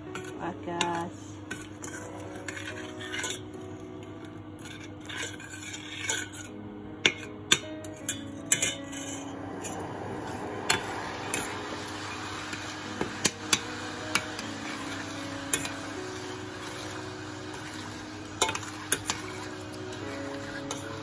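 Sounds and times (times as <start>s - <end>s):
spoon stirring in metal saucepan: 0.0s - 21.0s
spoon clinking against pan: 17.6s - 19.7s.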